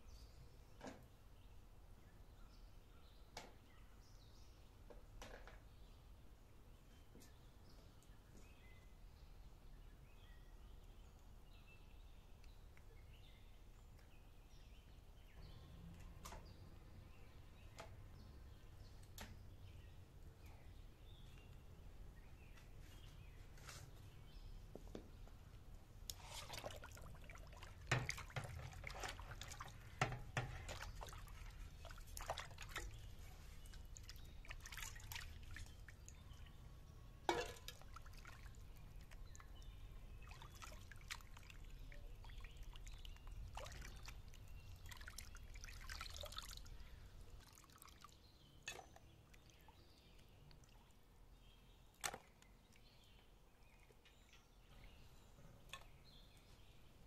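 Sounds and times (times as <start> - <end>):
water sloshing in a metal basin: 26.0 - 36.6, 37.2 - 56.8.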